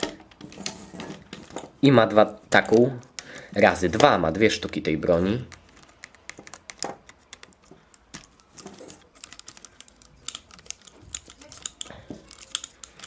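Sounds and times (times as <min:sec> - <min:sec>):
plastic toy parts clicking: 0:04.0 - 0:13.0.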